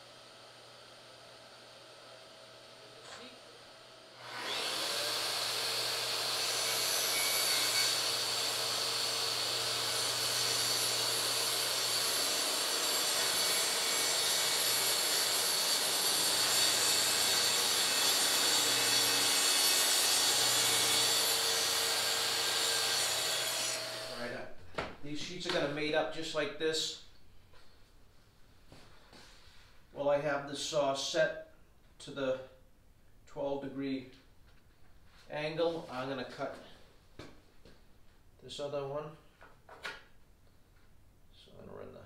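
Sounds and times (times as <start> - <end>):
dust extractor drawing air: 4.2 - 6.4
circular saw cutting plywood: 4.2 - 24.3.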